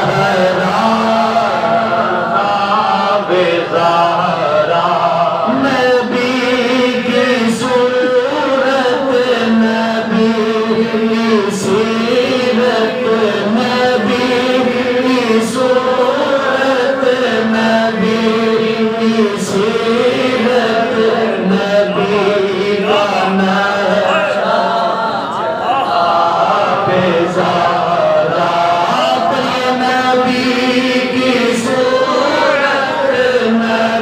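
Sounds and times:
man chanting devotional song: 0:00.0 - 0:34.0.

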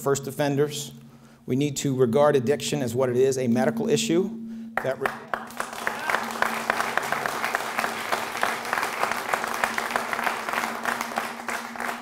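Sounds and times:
faint steady hum: 0:00.0 - 0:12.0
crowd applause: 0:05.1 - 0:12.0.

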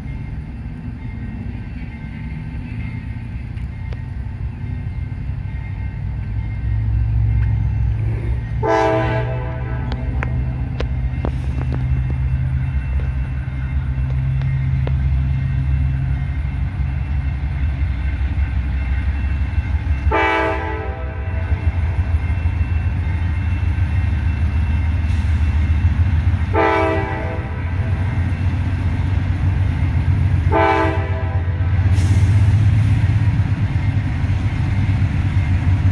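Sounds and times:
diesel locomotive engine drone: 0:00.0 - 0:35.9
train air horn blasts: 0:08.3 - 0:10.8, 0:20.0 - 0:22.2, 0:26.4 - 0:28.0, 0:30.4 - 0:32.4.

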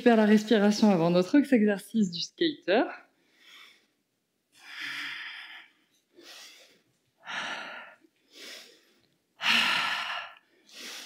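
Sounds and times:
woman breathing hard: 0:04.6 - 0:11.0.

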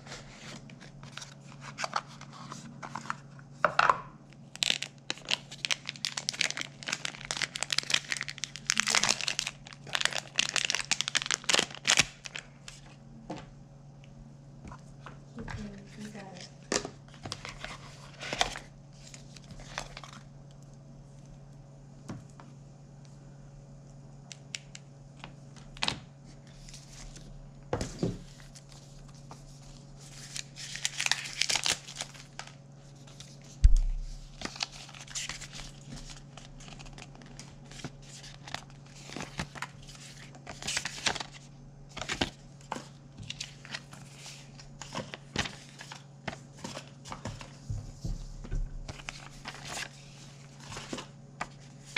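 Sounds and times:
steady low hum: 0:00.0 - 0:51.9
plastic wrapping crinkling: 0:04.4 - 0:12.8, 0:28.2 - 0:47.6, 0:48.3 - 0:51.9.

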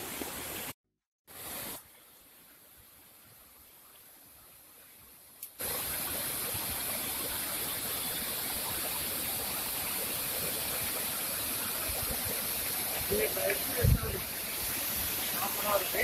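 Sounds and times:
stream rushing over rocks: 0:05.6 - 0:16.0.

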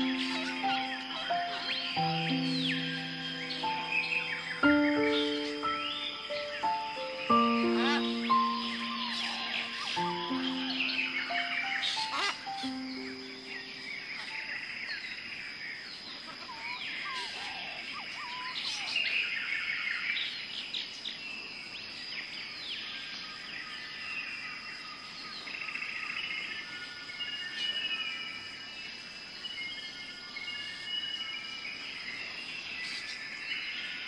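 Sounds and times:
high-pitched insect drone: 0:00.0 - 0:14.6
birdsong chirps and whistles: 0:00.0 - 0:34.0.

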